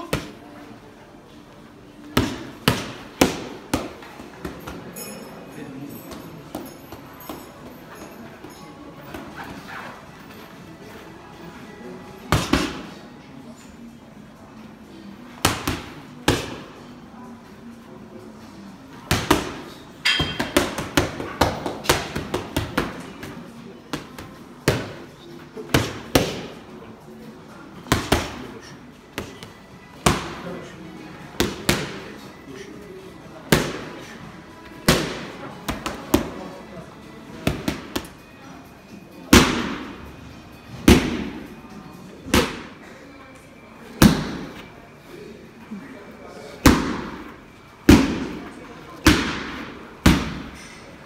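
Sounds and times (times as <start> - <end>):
boxing gloves hitting mitts: 2.1 - 4.9, 19.0 - 25.0, 34.8 - 36.4, 39.3 - 40.0, 40.8 - 41.4, 42.2 - 42.7, 44.0 - 44.5, 46.6 - 48.4, 49.0 - 50.7.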